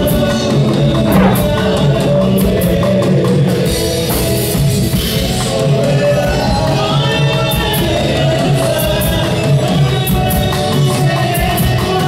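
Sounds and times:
live band music: 1.1 - 1.7.

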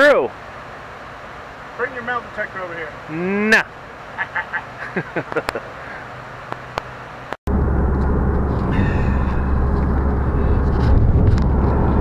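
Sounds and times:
car engine and road rumble: 5.2 - 12.0.

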